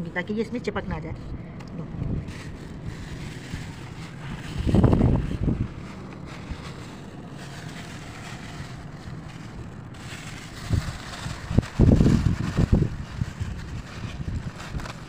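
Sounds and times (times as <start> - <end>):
wind buffeting microphone: 0.7 - 15.0.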